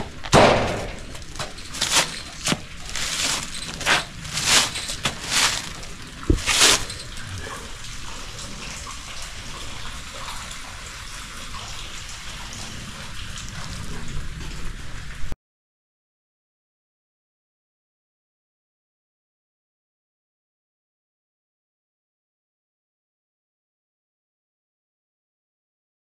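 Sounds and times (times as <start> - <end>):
footsteps crunching dry leaves: 1.2 - 7.2.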